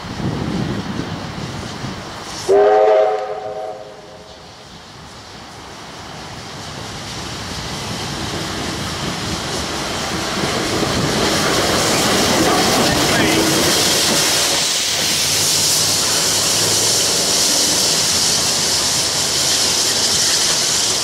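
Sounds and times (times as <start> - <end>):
steam hissing: 0.0 - 21.0
steam locomotive passing: 0.0 - 21.0
steam locomotive whistle: 2.4 - 4.4.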